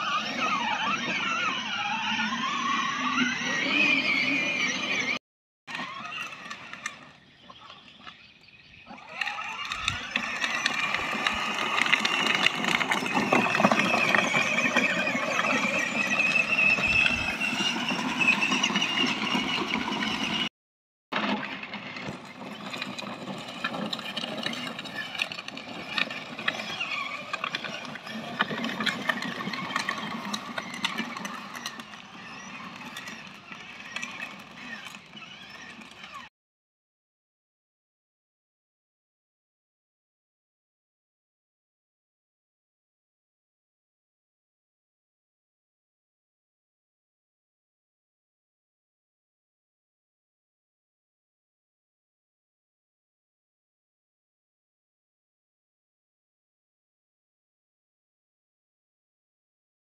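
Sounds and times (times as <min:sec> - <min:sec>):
electric toy car motor whine: 0:00.0 - 0:20.5, 0:21.2 - 0:36.3
tyre noise: 0:08.9 - 0:20.5.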